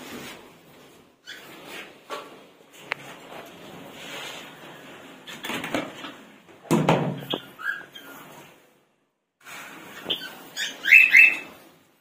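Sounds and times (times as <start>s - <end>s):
bird chirping: 7.2s - 8.2s, 10.0s - 11.6s.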